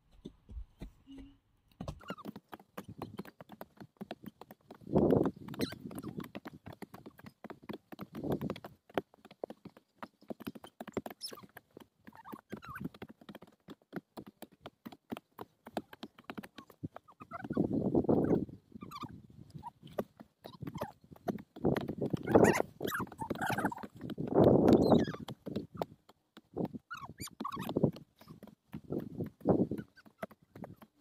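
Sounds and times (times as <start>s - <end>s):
hand hoes chopping dry soil: 0.1s - 11.6s.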